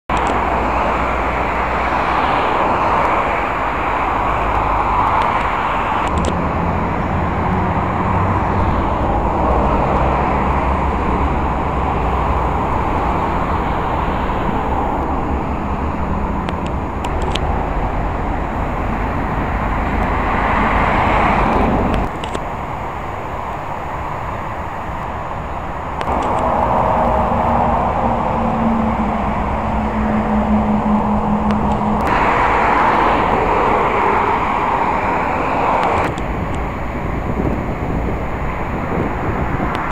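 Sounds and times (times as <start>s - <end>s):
vehicles passing: 0.1s - 39.9s
low engine rumble: 0.2s - 39.8s.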